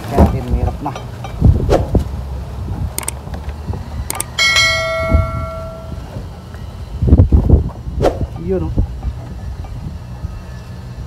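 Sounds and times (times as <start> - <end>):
struck pipe ringing: 4.4 - 6.2.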